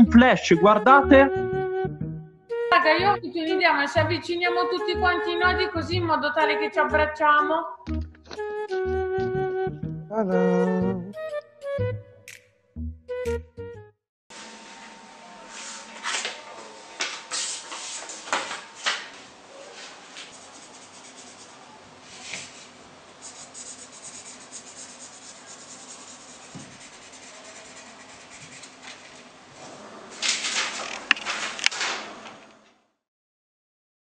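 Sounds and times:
markers scratching on paper: 20.2s - 21.6s, 23.2s - 29.0s
paper sheet rustling: 30.2s - 32.2s.

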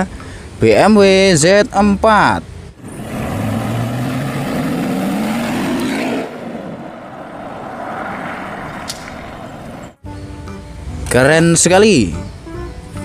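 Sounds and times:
car driving: 2.4s - 10.0s
car engine accelerating: 2.8s - 10.0s.

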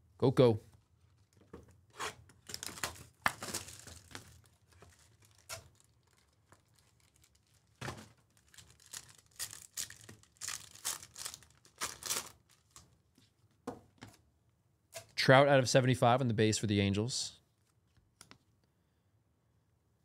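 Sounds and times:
foil wrapper crinkling and tearing: 2.4s - 12.9s.

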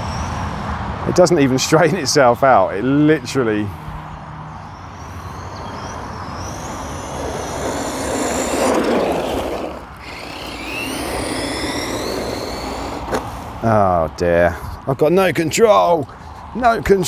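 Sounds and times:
rc car electric motor whine: 5.7s - 13.5s.

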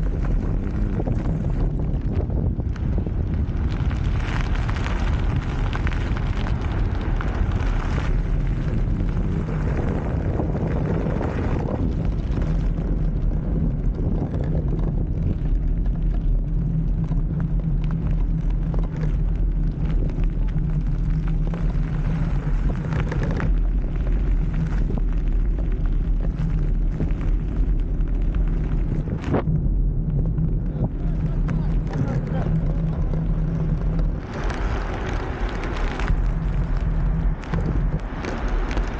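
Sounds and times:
wheels rolling on tarmac: 0.0s - 38.9s
wind buffeting microphone: 0.0s - 38.9s.

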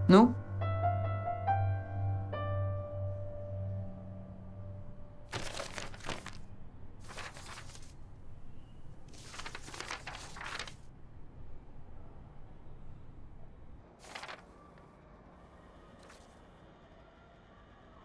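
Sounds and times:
rustling or crinkling: 5.3s - 6.4s, 7.0s - 8.0s, 9.0s - 10.9s, 14.0s - 14.8s, 16.0s - 16.4s.

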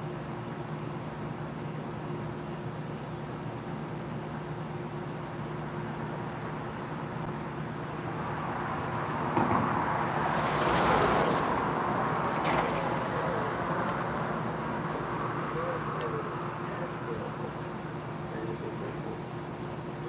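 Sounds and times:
steady low hum: 0.0s - 10.3s, 11.4s - 20.0s
car passing by: 9.6s - 14.1s.

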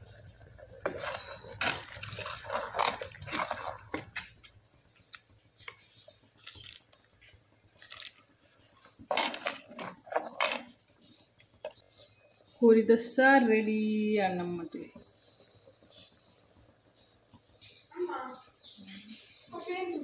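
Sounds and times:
metal ladle scraping a pot: 0.1s - 4.4s, 9.0s - 10.8s.

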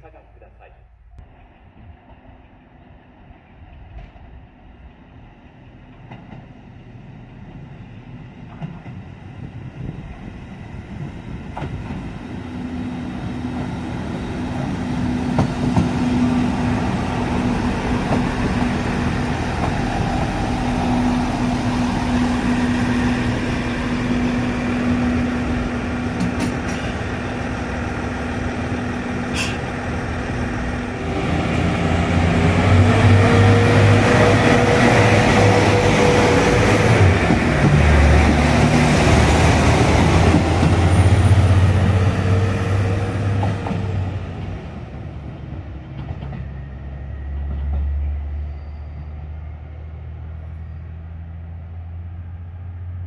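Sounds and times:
diesel railcar engine: 0.0s - 53.0s
rising engine whine: 12.5s - 26.4s, 27.0s - 44.2s.

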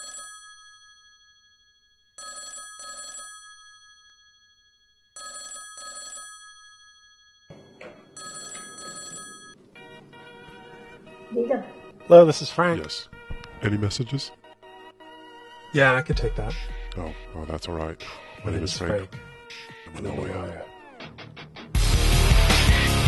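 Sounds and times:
telephone ringing: 0.0s - 15.7s
music: 9.8s - 23.0s.

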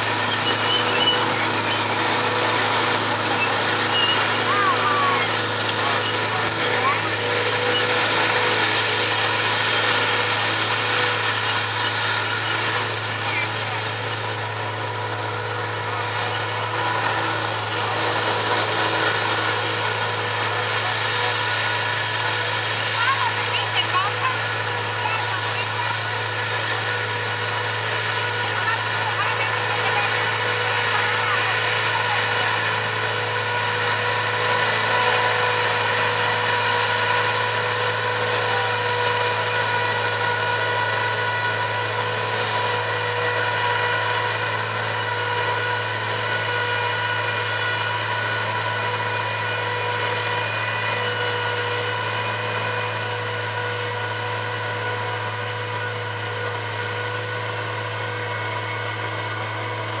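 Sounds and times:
forage harvester droning: 0.0s - 60.0s
tractor running: 0.0s - 60.0s.

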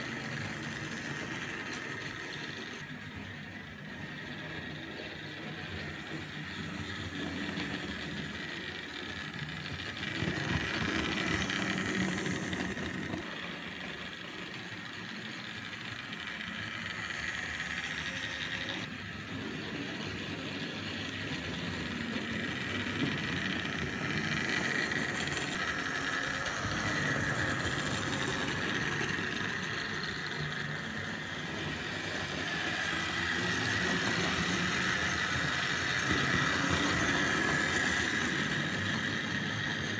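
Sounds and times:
model train motor whining: 0.0s - 39.9s.

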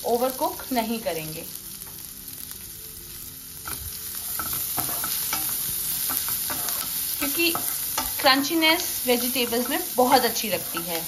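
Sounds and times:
vegetables sizzling in butter: 0.0s - 11.0s.

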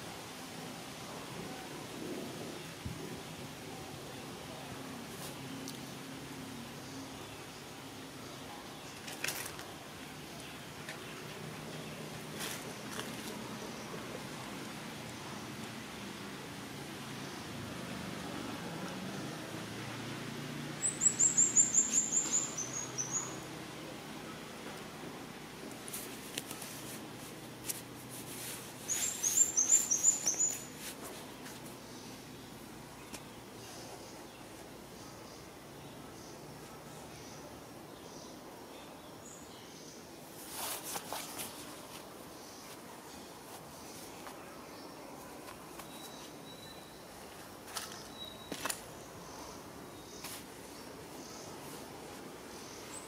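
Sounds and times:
bird chirping: 20.8s - 23.5s, 28.8s - 40.1s, 42.4s - 51.8s.

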